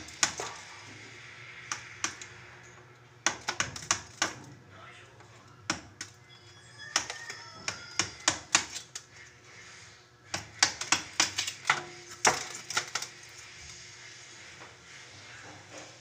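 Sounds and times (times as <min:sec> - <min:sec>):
hard objects clicking and knocking: 0:00.0 - 0:01.0, 0:01.7 - 0:04.6, 0:05.2 - 0:09.3, 0:10.3 - 0:13.5.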